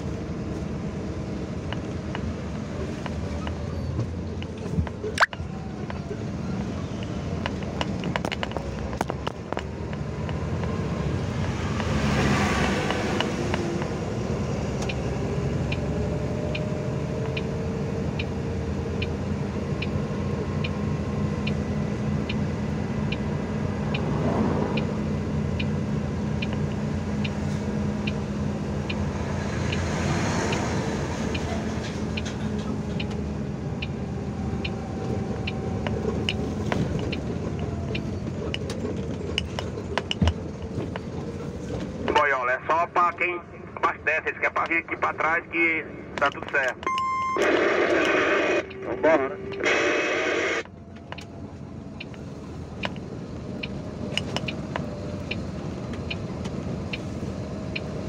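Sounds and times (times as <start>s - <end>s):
tyre and road noise: 0.0s - 58.0s
vehicles rushing past: 0.0s - 58.0s
light regular ticking: 52.0s - 58.0s.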